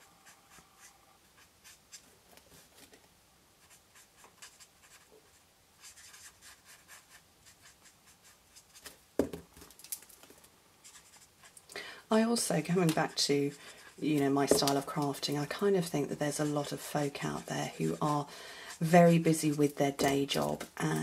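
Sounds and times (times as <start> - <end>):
marker scratching on cardstock: 3.6 - 8.8.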